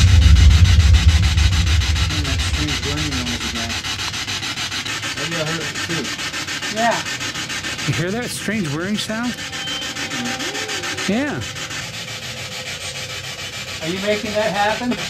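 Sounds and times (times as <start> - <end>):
faint wavering tones: 0.0 - 3.9
loud low whirring: 0.0 - 4.2.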